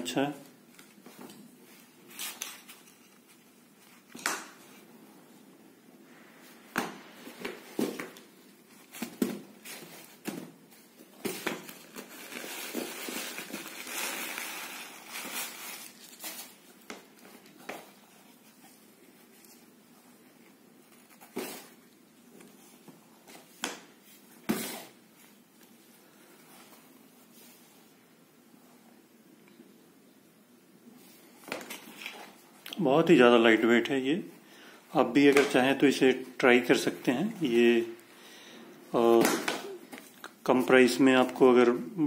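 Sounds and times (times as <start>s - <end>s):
plastic and tissue crinkling: 0.5s - 4.9s, 6.1s - 23.5s.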